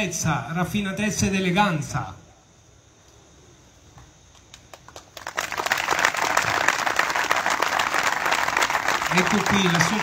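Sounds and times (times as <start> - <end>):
small crowd applauding: 4.4 - 10.0.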